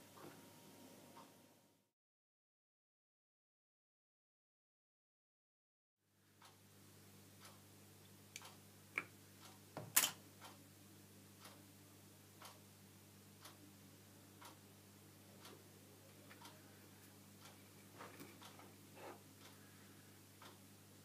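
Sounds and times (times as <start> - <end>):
low steady hum: 6.0 - 21.0
clock ticking faintly: 6.4 - 6.6, 7.4 - 7.7, 10.4 - 10.6, 11.3 - 11.7, 12.3 - 12.7, 13.3 - 13.6, 14.4 - 14.7, 15.4 - 15.6, 16.3 - 16.8, 17.4 - 20.8.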